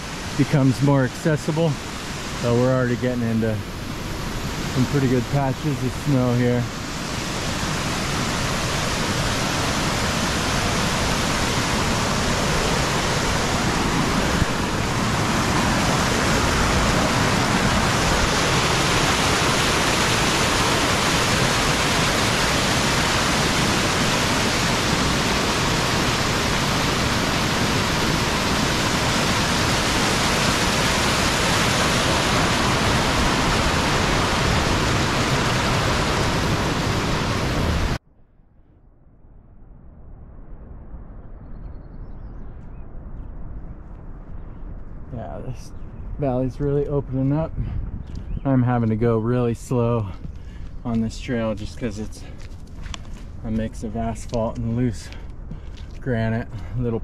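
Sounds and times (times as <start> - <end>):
water rushing down a creek: 0.0 - 38.0.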